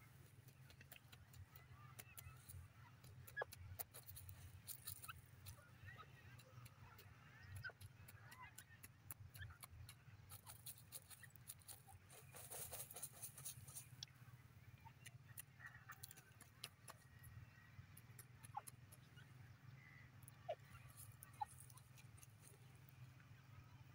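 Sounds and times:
faint bird chirps: 0.0s - 23.9s
bird scratching in dry soil: 0.1s - 5.6s, 7.4s - 14.0s, 15.0s - 17.1s, 20.8s - 22.7s.

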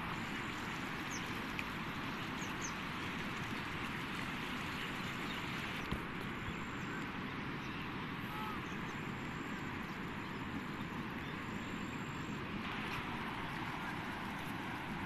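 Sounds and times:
floodwater rushing: 11.8s - 15.0s.

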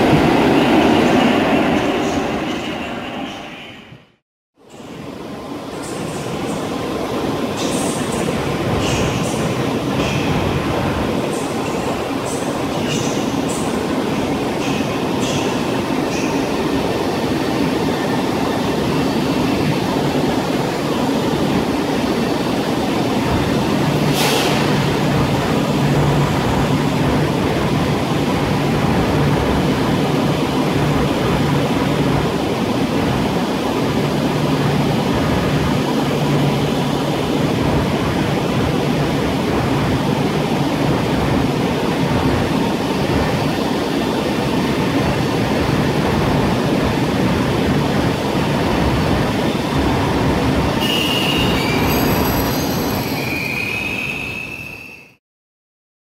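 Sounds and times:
brief hiss: 24.1s - 24.8s
high squeals: 50.8s - 55.2s.

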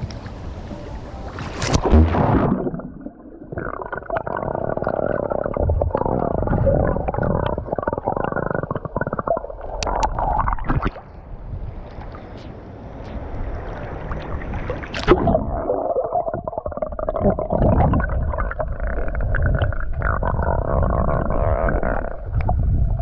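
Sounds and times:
water splashing: 1.3s - 12.4s, 13.1s - 23.0s
muffled underwater gurgling: 1.7s - 11.0s, 14.0s - 23.0s.

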